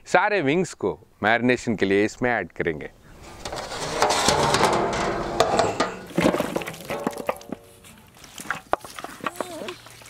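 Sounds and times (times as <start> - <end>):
chicken wings clattering into metal pan: 3.4 - 7.8.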